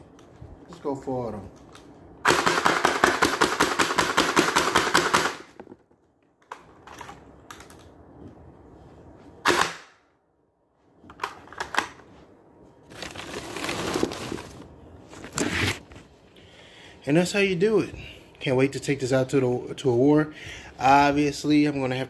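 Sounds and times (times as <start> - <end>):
dart blaster full-auto burst: 2.2 - 5.5
plastic clicks and handling noise: 6.2 - 8.0.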